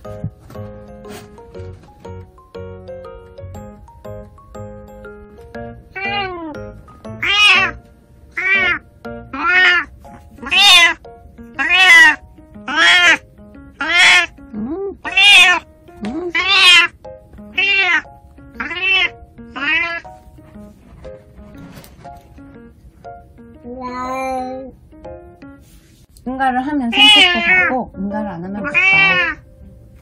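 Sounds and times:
cat meowing: 0:05.9 - 0:06.6, 0:07.2 - 0:07.8, 0:08.4 - 0:11.0, 0:11.6 - 0:13.2, 0:13.8 - 0:14.4, 0:15.0 - 0:15.6, 0:16.3 - 0:20.1, 0:26.9 - 0:27.7, 0:28.6 - 0:29.5.

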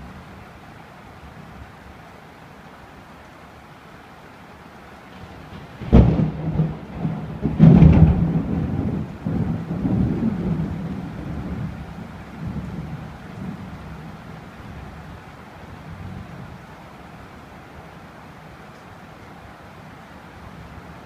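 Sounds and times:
rolling thunder rumble: 0:05.2 - 0:14.1
thunder crash: 0:05.8 - 0:10.7
thunder crack: 0:05.8 - 0:11.7.

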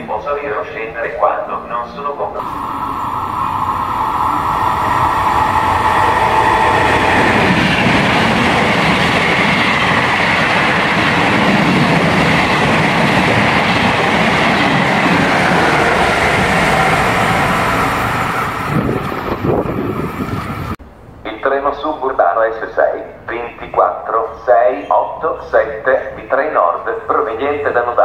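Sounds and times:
train wheels running on rails: 0:02.4 - 0:20.8.

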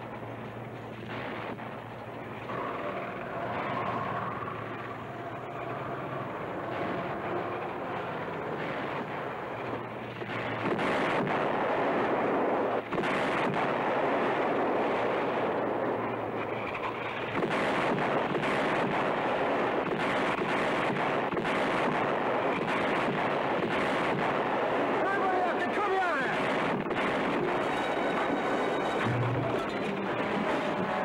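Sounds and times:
truck engine running: 0:00.0 - 0:31.0
artillery shells bursting: 0:06.3 - 0:31.0.

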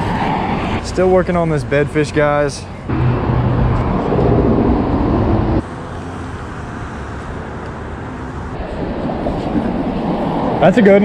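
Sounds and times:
traffic hum: 0:00.0 - 0:11.0
vehicle passing overhead: 0:02.8 - 0:11.0.

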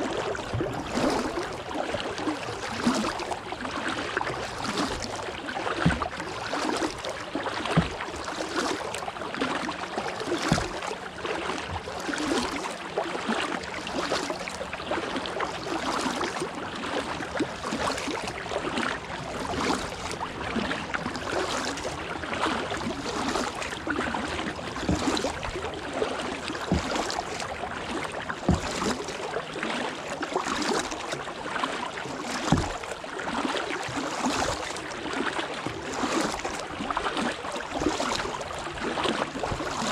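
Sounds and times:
paddle splashing in water: 0:00.0 - 0:39.9.

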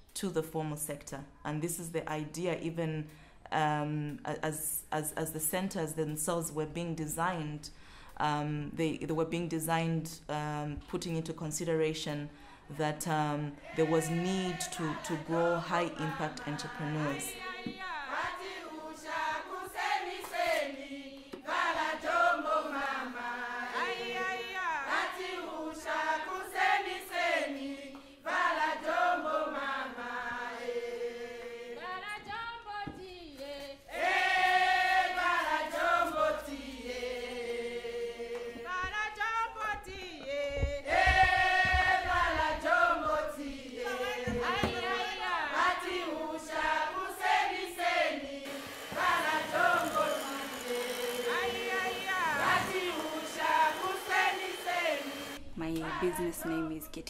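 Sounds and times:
choir singing: 0:13.6 - 0:32.3, 0:33.7 - 0:39.3, 0:40.1 - 0:56.4.

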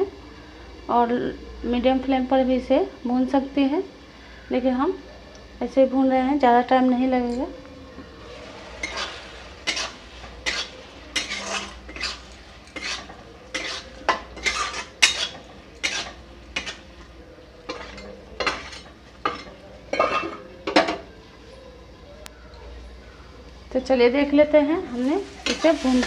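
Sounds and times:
spatula scraping metal pan: 0:08.2 - 0:16.9, 0:17.6 - 0:20.4, 0:24.9 - 0:26.0.

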